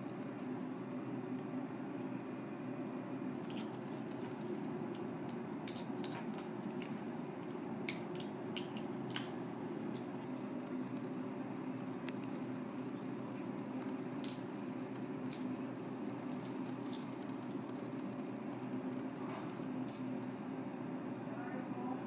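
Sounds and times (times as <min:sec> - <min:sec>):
soft squishing of meat: 0:02.8 - 0:20.5.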